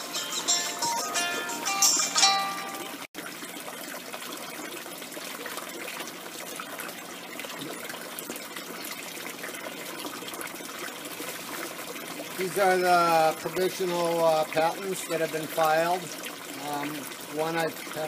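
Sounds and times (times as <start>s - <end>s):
water trickling and splashing: 0.0s - 18.0s.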